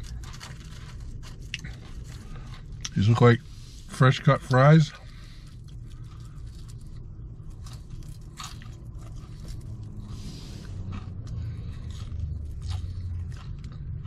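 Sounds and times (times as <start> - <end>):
chewing french fries: 0.0 - 14.0
low rumble: 4.9 - 14.0.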